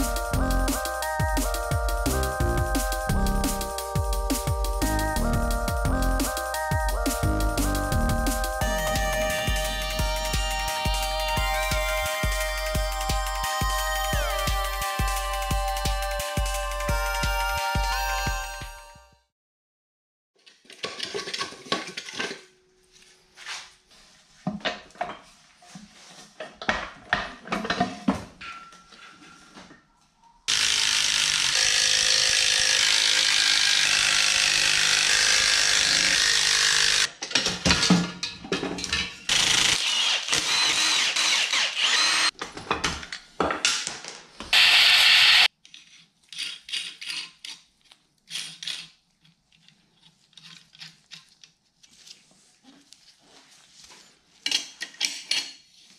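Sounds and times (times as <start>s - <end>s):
tools and metal parts clinking: 27.4s - 29.5s, 37.1s - 39.3s, 45.6s - 51.5s, 54.4s - 55.7s
cordless power tool running: 30.5s - 37.1s, 39.3s - 42.3s, 44.6s - 45.5s.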